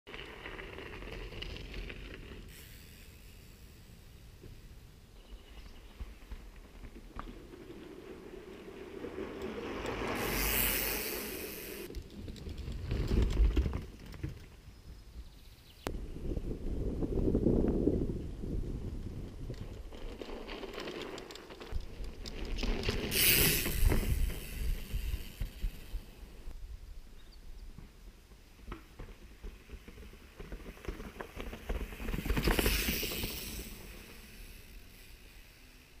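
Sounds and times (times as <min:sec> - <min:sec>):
bike tyres crackling over leaves: 0:00.1 - 0:14.4, 0:19.1 - 0:26.5, 0:28.5 - 0:36.0
rushing hiss: 0:10.2 - 0:11.9, 0:23.1 - 0:26.0.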